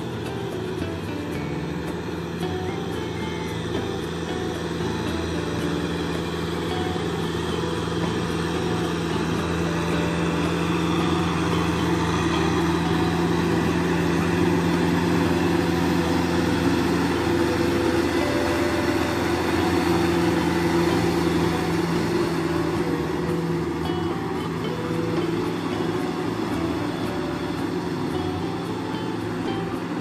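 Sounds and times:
tractor diesel engine running: 0.0 - 30.0.

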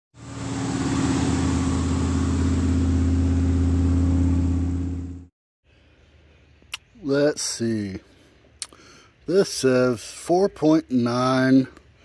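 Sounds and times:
vehicle engine idling: 0.2 - 5.3.

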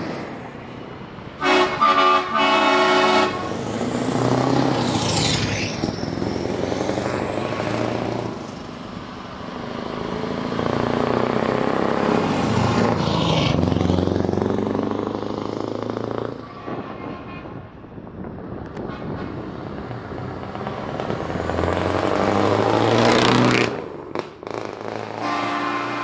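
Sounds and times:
heavy trucks driving past: 0.0 - 26.0.

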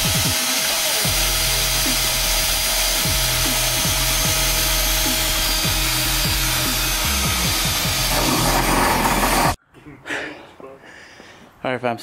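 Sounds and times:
cordless drill whirring: 0.0 - 9.6
music with deep bass notes: 1.0 - 8.2.

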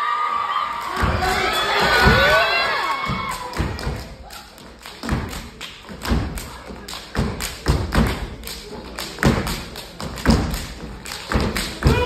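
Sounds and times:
audience cheering and whooping: 0.0 - 3.8
stomps and claps on wooden stage: 0.7 - 12.0.

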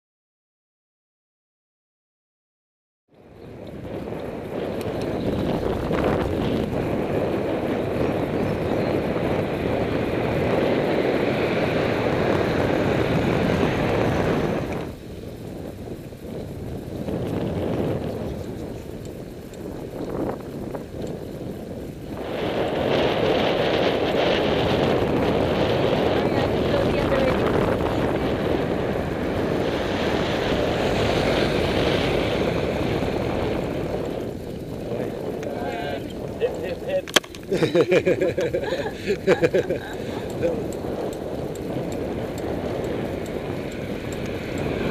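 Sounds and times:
road rumble: 3.1 - 44.9
wind noise on microphone: 3.1 - 44.9
car going by: 26.4 - 36.6.

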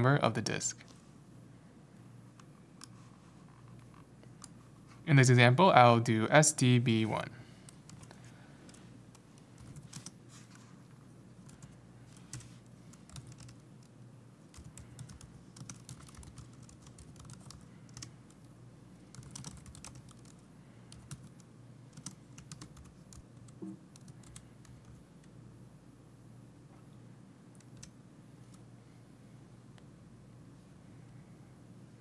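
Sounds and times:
faint low hum: 0.0 - 32.0
computer keyboard typing: 7.7 - 10.2, 11.4 - 13.9, 14.5 - 25.3, 27.5 - 28.6.

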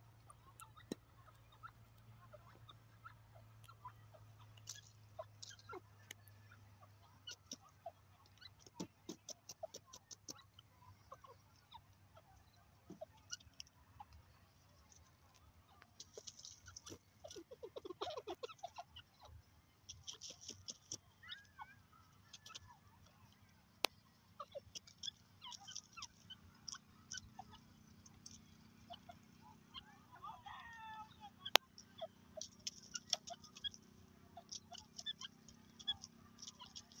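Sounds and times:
bird pecking in dry soil: 0.0 - 11.3, 12.2 - 29.9, 30.5 - 37.0
bird scratching in dry soil: 8.4 - 10.5, 14.8 - 18.4, 19.8 - 21.6, 31.7 - 37.0.

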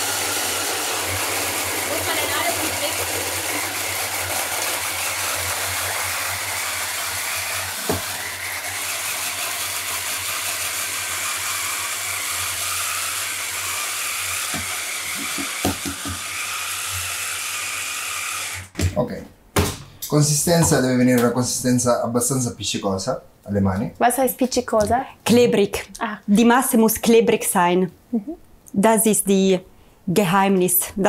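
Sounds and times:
electric chopper grinding nuts: 0.0 - 18.8
knocks: 18.7 - 19.9.

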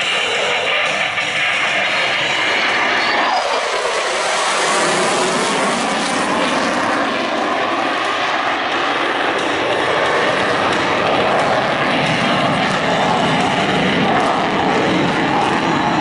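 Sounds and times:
jet engine roaring in afterburner: 0.0 - 16.0.

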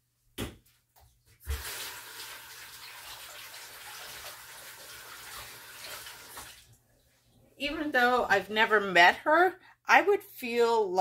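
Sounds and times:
water running from a tap: 1.4 - 6.8.

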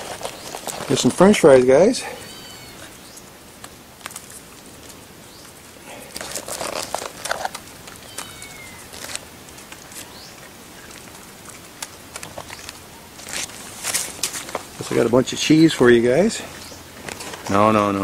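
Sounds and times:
rustling and scuffling: 0.0 - 18.0
bird chirping: 2.0 - 3.3, 5.2 - 5.6, 8.0 - 8.9, 10.0 - 10.9, 16.3 - 16.9.

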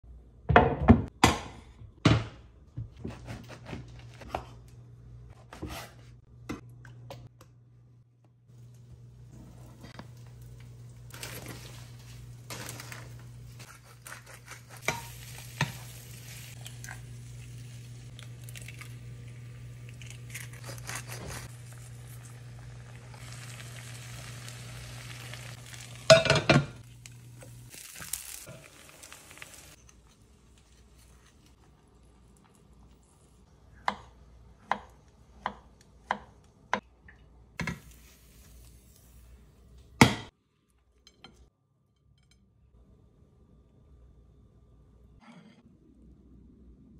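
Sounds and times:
butter and eggs sizzling in a pan: 14.3 - 20.3, 21.4 - 30.4
cookware clattering: 26.1 - 26.8.

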